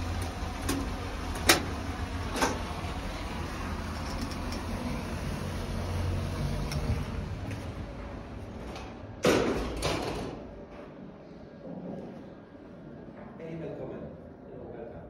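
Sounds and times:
low vehicle rumble: 0.0s - 9.2s.

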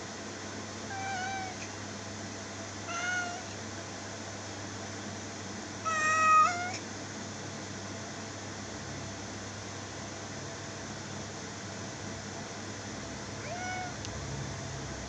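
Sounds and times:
kitten meowing: 0.9s - 1.7s, 2.9s - 3.5s, 5.9s - 6.8s, 13.4s - 14.0s.

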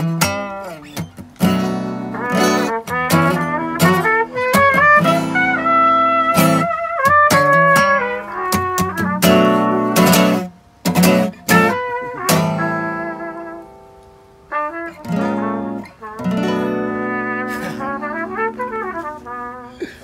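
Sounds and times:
guitar plucked notes and chords: 0.0s - 19.7s.

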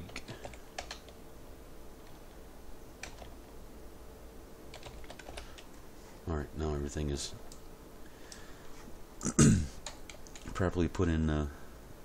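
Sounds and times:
computer keyboard keystrokes: 0.0s - 1.2s, 3.0s - 3.4s, 4.7s - 5.7s, 9.8s - 10.6s.

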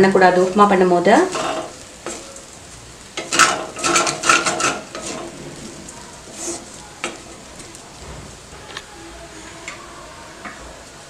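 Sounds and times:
wooden spatula scraping steel pan: 3.2s - 8.8s.

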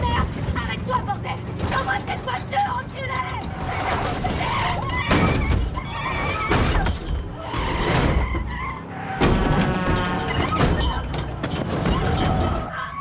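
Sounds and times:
car tyres skidding: 3.5s - 13.0s.

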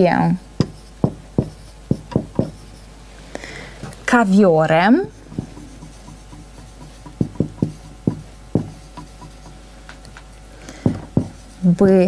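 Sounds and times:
marker tip tapping board: 0.6s - 2.7s, 5.3s - 11.4s
marker rubbing on whiteboard: 0.6s - 2.9s, 4.9s - 9.7s, 10.9s - 12.0s.

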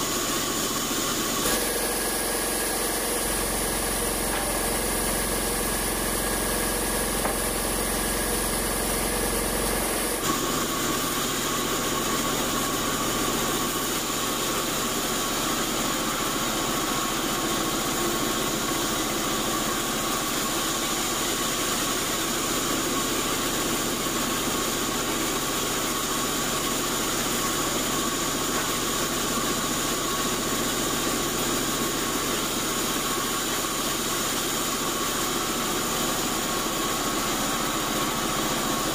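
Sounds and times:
band saw cutting timber: 1.3s - 13.9s.

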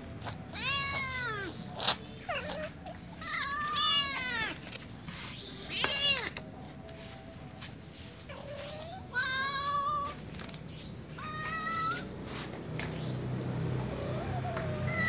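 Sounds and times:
young cats meowing: 0.3s - 6.4s, 8.2s - 12.4s, 13.6s - 15.0s.

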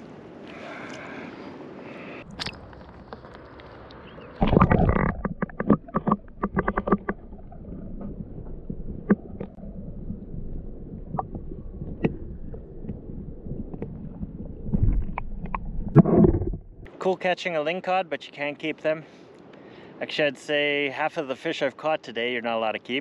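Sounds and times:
underwater rumble of moving water: 2.3s - 16.9s
sharp clicks and knocks: 4.4s - 9.6s.

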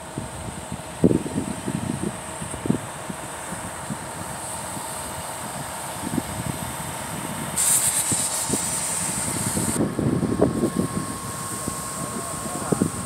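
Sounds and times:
heavy truck machinery running: 0.0s - 13.0s
hiss: 3.4s - 9.8s, 10.6s - 13.0s.

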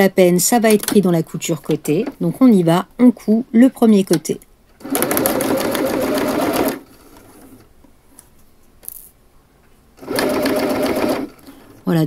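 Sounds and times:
sewing machine stitching: 4.8s - 7.7s, 10.0s - 11.4s.

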